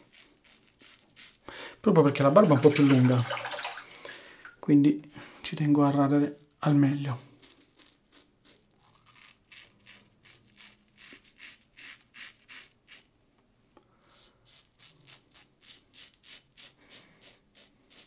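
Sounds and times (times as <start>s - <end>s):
razor scraping stubble: 0.0s - 1.4s, 6.7s - 13.1s, 14.0s - 18.0s.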